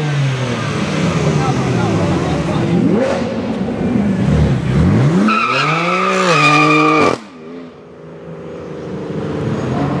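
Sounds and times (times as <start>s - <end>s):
car engine revving high: 0.2s - 7.4s.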